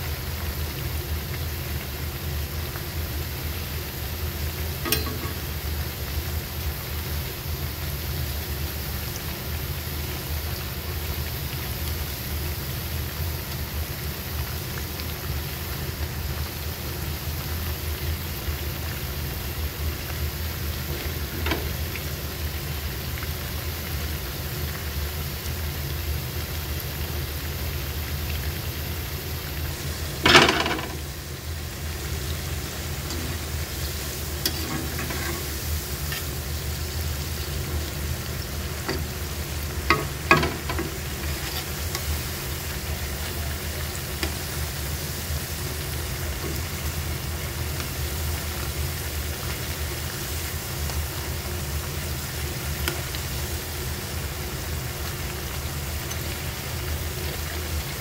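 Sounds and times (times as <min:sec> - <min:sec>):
food deep-frying in hot oil: 0:00.0 - 0:58.0
metal spatula clinking on wok: 0:04.8 - 0:05.5.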